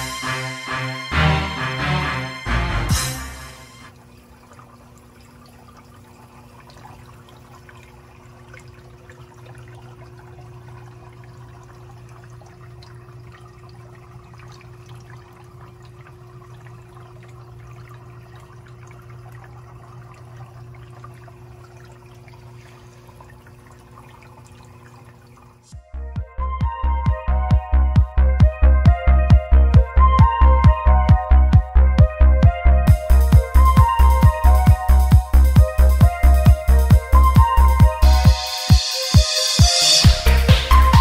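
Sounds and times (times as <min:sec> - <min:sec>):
low pump hum: 0:00.0 - 0:41.0
water trickling and bubbling: 0:03.9 - 0:25.8.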